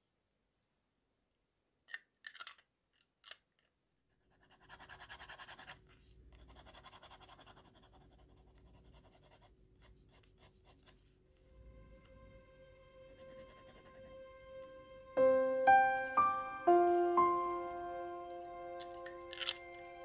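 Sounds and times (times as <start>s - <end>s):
pen nib scratching paper: 4.1s - 12.1s, 13.1s - 14.2s, 15.5s - 17.4s
plastic pen cap clicks: 18.8s - 19.8s.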